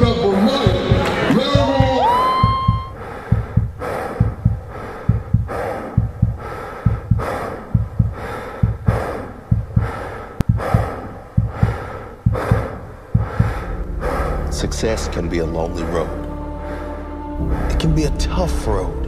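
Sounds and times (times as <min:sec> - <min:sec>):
deep low thuds: 0:00.0 - 0:16.8
man breathing heavily: 0:02.9 - 0:15.3.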